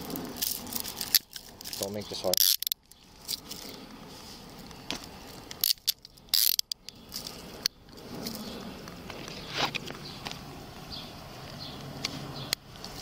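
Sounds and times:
handcuffs ratchet clicking: 0:00.4 - 0:02.8, 0:05.5 - 0:07.0.

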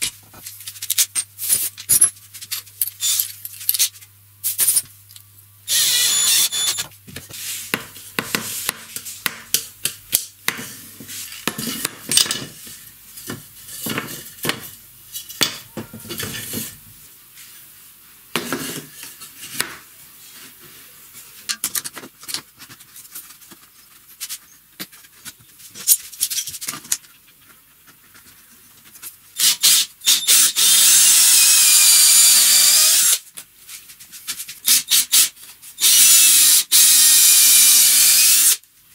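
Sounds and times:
cordless drill into wood: 0:05.7 - 0:06.8, 0:29.4 - 0:33.2, 0:34.7 - 0:38.6.

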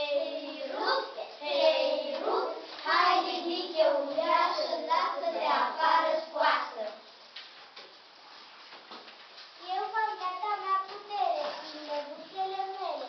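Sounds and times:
child singing: 0:00.0 - 0:07.0.

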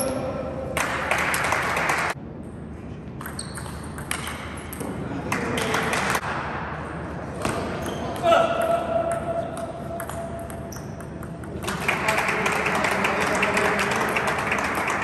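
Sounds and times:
table tennis ball bouncing: 0:03.2 - 0:06.3, 0:08.1 - 0:12.4.

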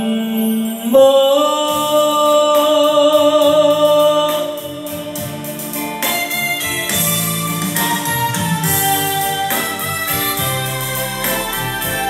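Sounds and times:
instrumental backing track: 0:00.0 - 0:12.0
person singing karaoke: 0:00.0 - 0:12.0.

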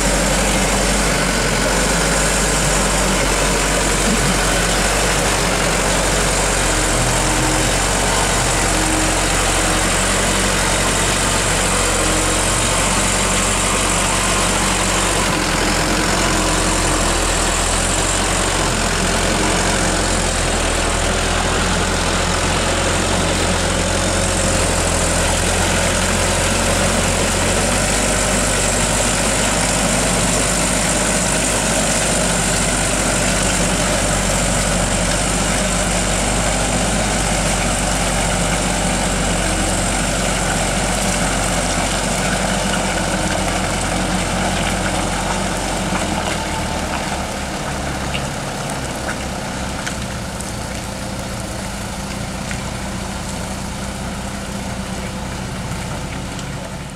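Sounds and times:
diesel truck engine under load: 0:00.0 - 0:56.9.

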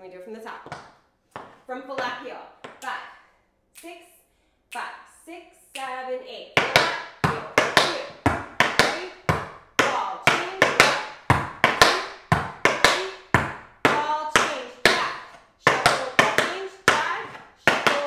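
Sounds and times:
tap shoes on wooden board: 0:00.6 - 0:02.8, 0:06.6 - 0:18.0.

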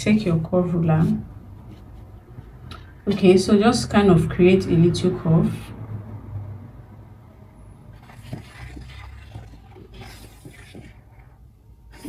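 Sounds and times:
pencil scratching on paper: 0:08.0 - 0:12.0.

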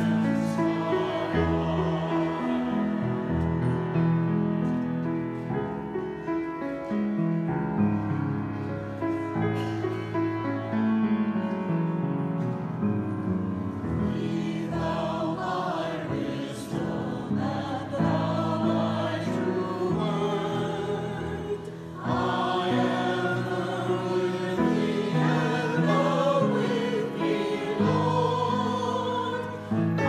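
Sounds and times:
choir singing a hymn: 0:00.0 - 0:05.7, 0:13.7 - 0:30.0
keyboard accompaniment: 0:00.0 - 0:30.0.

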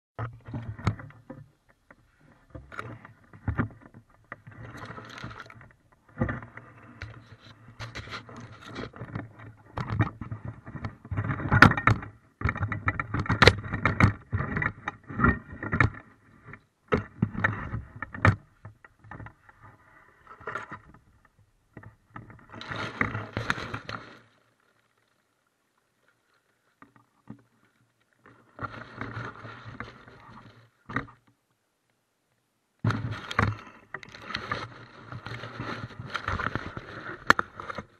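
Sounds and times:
rustling in reeds and grass: 0:22.1 - 0:31.0, 0:32.8 - 0:37.9.

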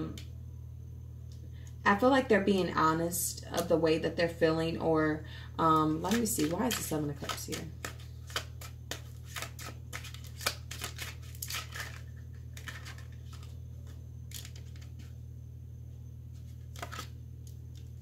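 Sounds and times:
steady low hum: 0:00.0 - 0:18.0
cards being shuffled: 0:06.0 - 0:15.1, 0:16.4 - 0:18.0.

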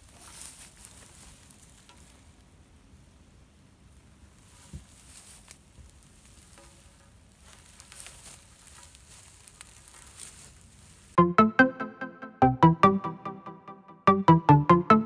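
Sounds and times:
faint crackling rustle: 0:00.0 - 0:02.5, 0:03.9 - 0:11.2.

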